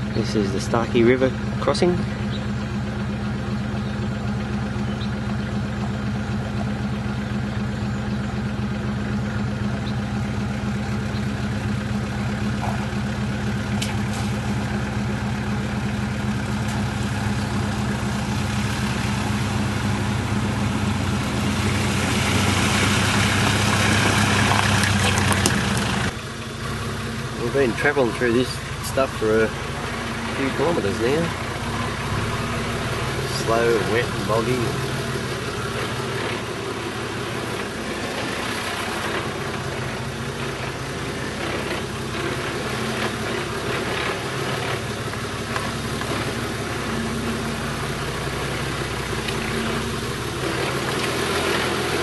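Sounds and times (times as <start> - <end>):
vehicle engine running at low revs: 0.0 - 52.0
water splashing: 11.4 - 52.0.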